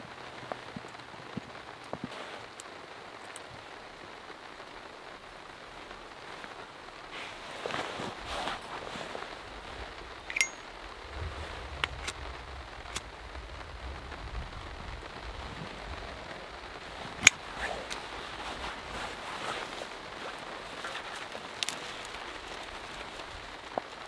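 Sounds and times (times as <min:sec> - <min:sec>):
steady hiss: 0:00.0 - 0:24.0
metallic lighter clicks: 0:10.3 - 0:10.7.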